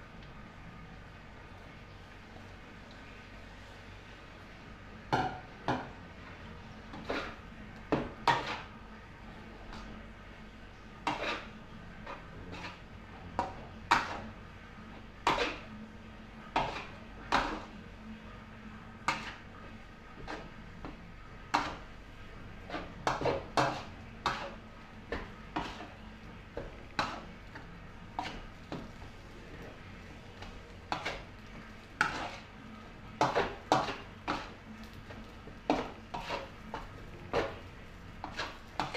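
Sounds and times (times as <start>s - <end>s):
metal spatula scraping a wok: 6.9s - 7.4s, 8.2s - 8.7s, 11.0s - 14.3s, 15.2s - 15.7s, 16.5s - 17.8s, 22.6s - 24.6s, 25.5s - 26.0s, 27.0s - 27.4s, 28.1s - 28.6s, 30.4s - 31.3s, 31.9s - 32.6s, 33.2s - 34.6s, 35.7s - 38.9s.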